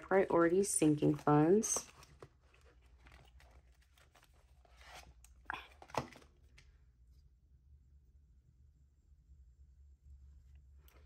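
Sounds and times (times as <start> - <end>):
paper envelopes and bills rustling: 0.0 - 6.8
paper crinkling: 0.6 - 6.7.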